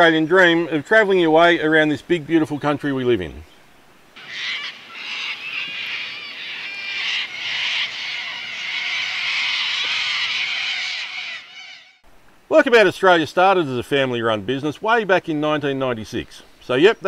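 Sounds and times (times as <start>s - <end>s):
chorus of small birds: 4.2s - 12.0s.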